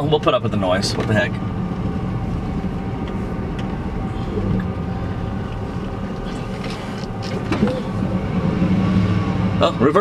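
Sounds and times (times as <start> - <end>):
truck engine running at low revs: 0.0 - 10.0.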